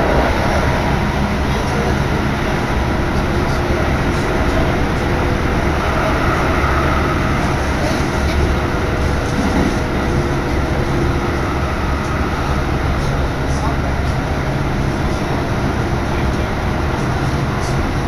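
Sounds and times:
electric train running rumble: 0:00.0 - 0:18.0.

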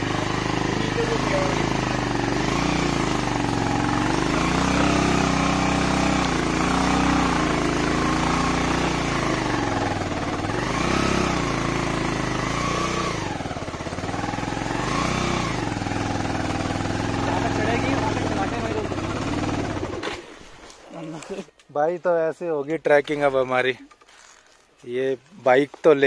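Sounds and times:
motorcycle engine revving under load: 0:00.0 - 0:20.6.

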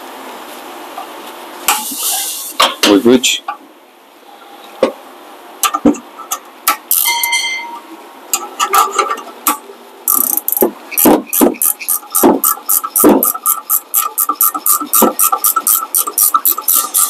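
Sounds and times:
metallic tool whir: 0:10.1 - 0:17.0
tool clicks and knocks: 0:10.4 - 0:17.0.

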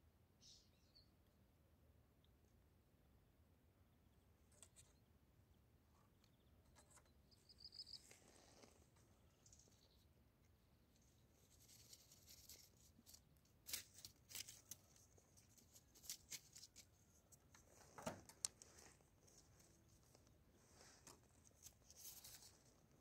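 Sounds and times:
kitten rustling in dry grass: 0:07.8 - 0:09.8, 0:10.9 - 0:23.0.

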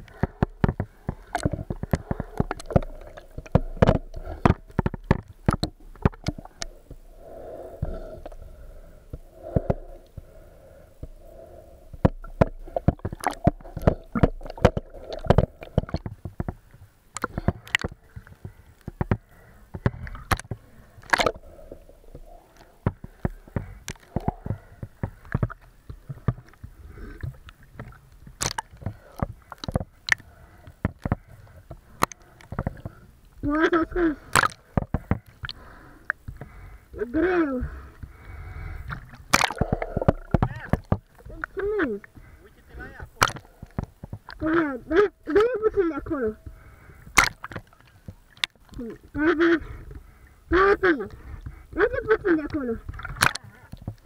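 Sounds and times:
sharp clicks and knocks: 0:00.0 - 0:07.0
water sloshing and gurgling: 0:00.0 - 0:54.0.

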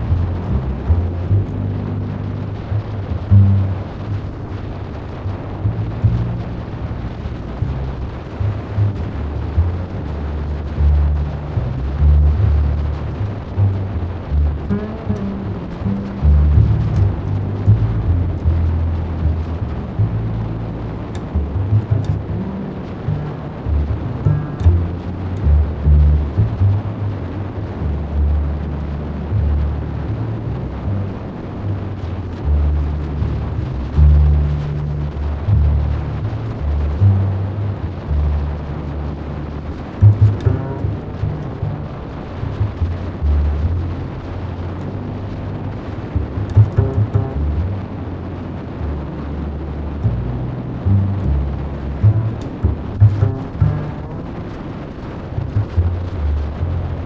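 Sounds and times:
road noise: 0:00.0 - 0:57.0
wind rumble on microphone: 0:00.0 - 0:57.0.

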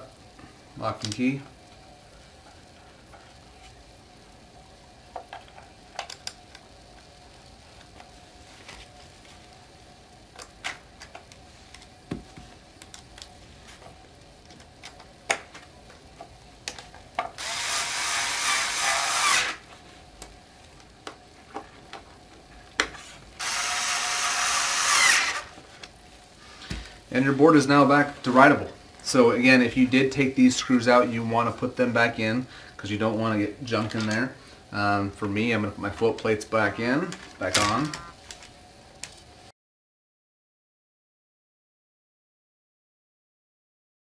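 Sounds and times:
electric screwdriver running: 0:17.4 - 0:19.6, 0:23.4 - 0:25.6.

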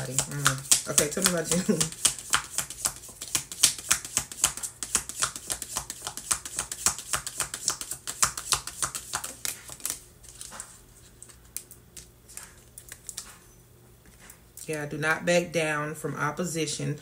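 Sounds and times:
cards shuffled by hand: 0:00.0 - 0:13.4.

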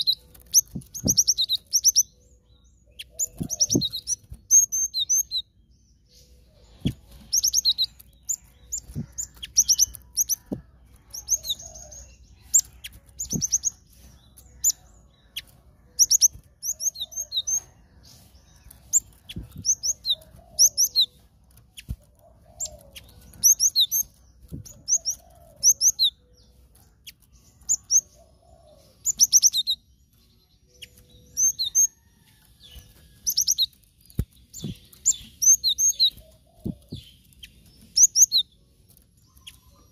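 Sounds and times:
wing flutters: 0:03.2 - 0:04.5.

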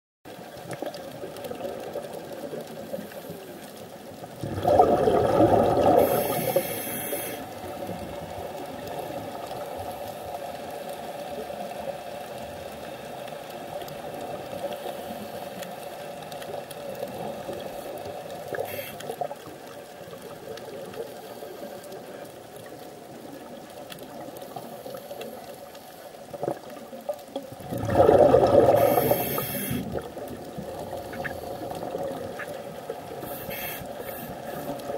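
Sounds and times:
faint underwater hiss and hum: 0:00.3 - 0:34.9
rush of exhaled bubbles: 0:04.2 - 0:09.6, 0:27.4 - 0:34.9.

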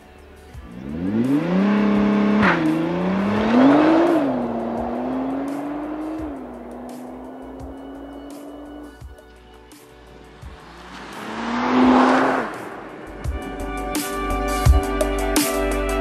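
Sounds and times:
car engine revving: 0:00.6 - 0:09.0, 0:10.1 - 0:14.2.

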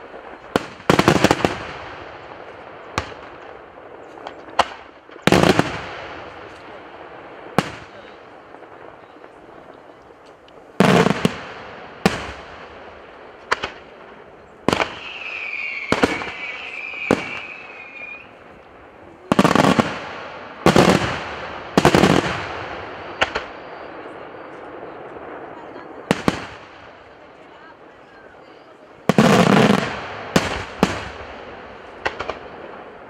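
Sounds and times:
firework shells bursting: 0:08.5 - 0:23.6
wavering whistle: 0:15.0 - 0:18.4.

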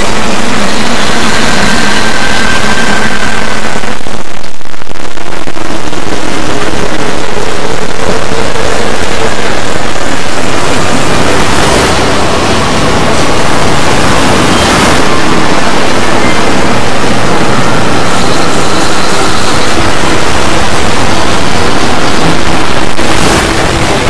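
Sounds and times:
harsh distorted noise: 0:00.0 - 0:24.0.

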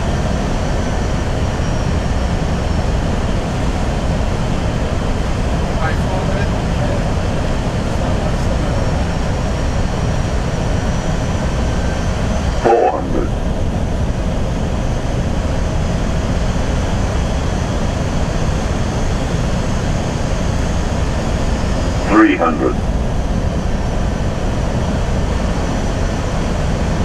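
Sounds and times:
cockpit airflow and engine noise: 0:00.0 - 0:27.0
short voice call: 0:12.6 - 0:13.3.

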